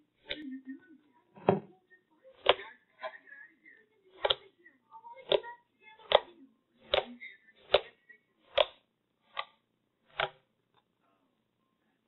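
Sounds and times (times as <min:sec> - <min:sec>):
fingers poking wet slime: 0:08.5 - 0:10.4.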